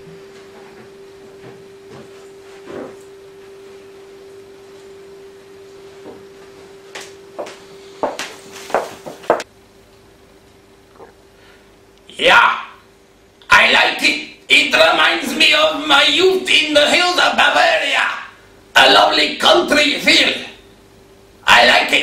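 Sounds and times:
footsteps: 0.0s - 3.5s, 6.0s - 9.4s
faint hum: 0.0s - 22.0s.

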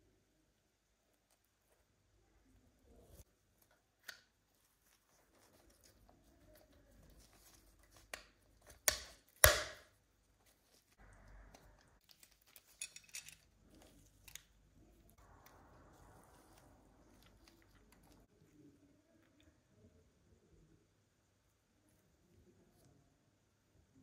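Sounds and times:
plastic parts snapping: 8.0s - 9.9s
small parts clicking and tapping: 11.4s - 14.6s.

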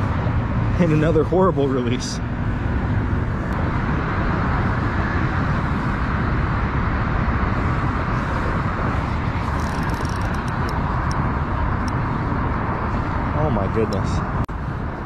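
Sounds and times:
wind noise on microphone: 2.2s - 15.0s.

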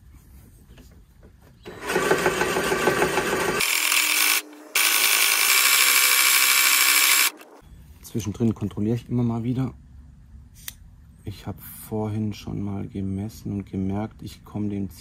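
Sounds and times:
mower reel grinding: 1.7s - 7.6s.

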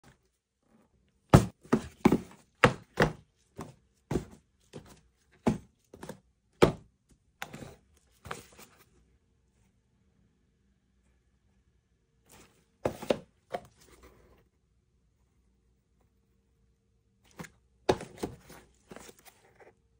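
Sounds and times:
cardboard boxes knocking on desk: 1.3s - 8.5s, 12.8s - 13.7s, 17.9s - 19.1s.

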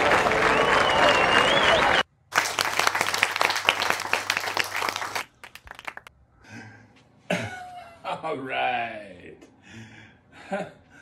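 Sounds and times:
audience applause: 0.0s - 6.1s
scattered claps: 0.0s - 6.1s.

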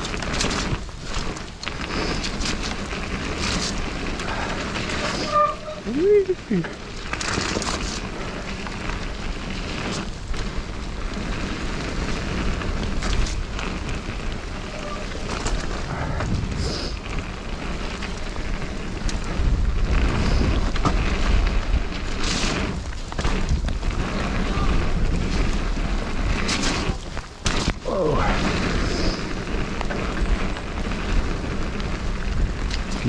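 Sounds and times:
bike knocks and rattles: 0.0s - 5.8s, 6.5s - 33.0s
tyres rolling over gravel: 0.0s - 33.0s
wind on microphone: 7.2s - 33.0s.

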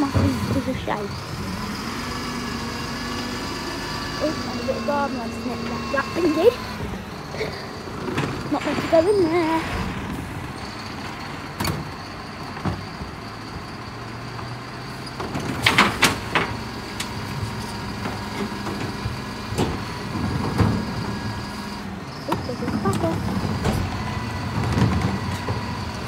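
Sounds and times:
bin lorry idling: 0.0s - 26.0s
bins knocking and clattering: 22.3s - 26.0s.

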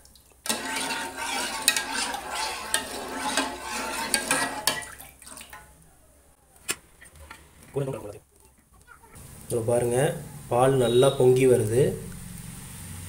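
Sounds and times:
ladle scraping in saucepan: 0.4s - 5.8s.

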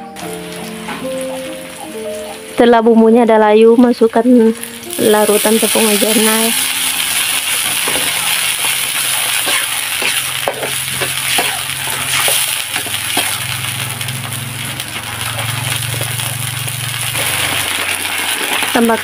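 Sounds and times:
sauce bubbling and sizzling: 0.1s - 2.9s, 4.4s - 19.0s
metal spatula scraping wok: 5.9s - 13.6s.

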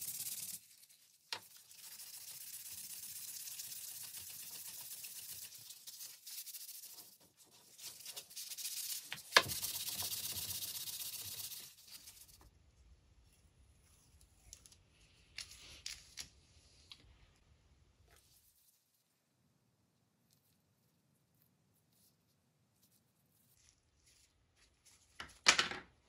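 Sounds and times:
sanding sponge rubbing wood: 1.5s - 12.3s.

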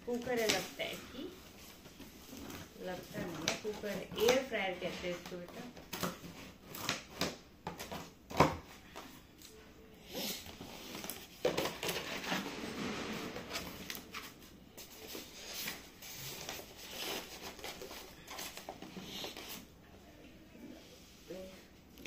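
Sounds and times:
plastic sheet crinkling: 0.0s - 7.2s.

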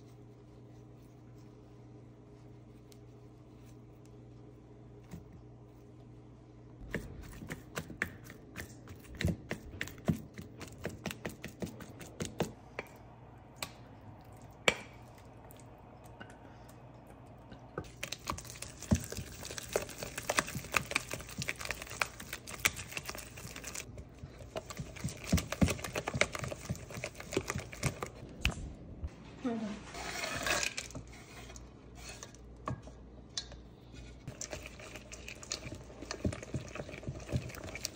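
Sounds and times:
low steady hum: 0.0s - 37.9s
spatula scraping bowl: 29.8s - 32.4s, 34.0s - 37.9s.

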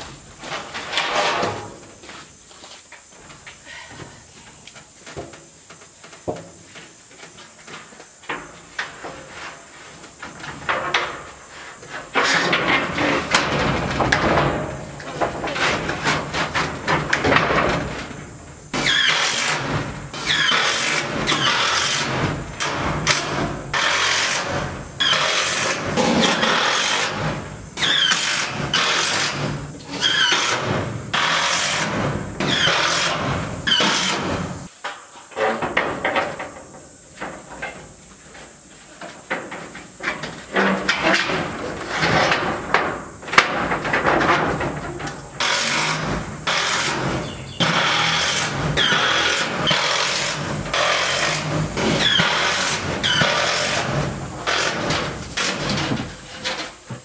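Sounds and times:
power drill driving screws into metal: 18.8s - 34.4s.

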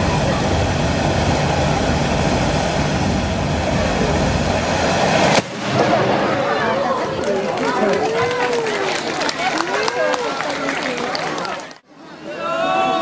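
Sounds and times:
firework fountain rushing: 0.0s - 11.8s
crowd voices: 0.0s - 13.0s
firework bang: 0.9s - 7.0s.

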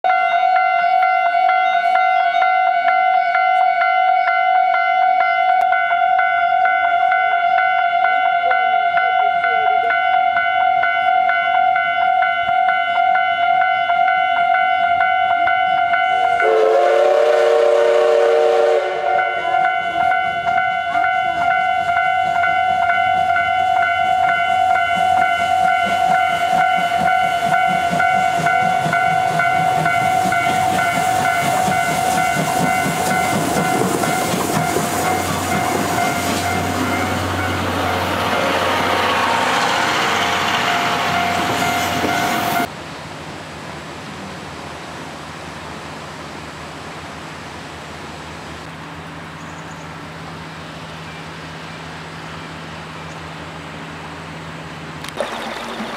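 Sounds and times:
level-crossing alarm ringing: 0.1s - 16.6s, 18.8s - 42.7s
steam locomotive chuffing: 15.8s - 42.7s, 54.6s - 55.9s.

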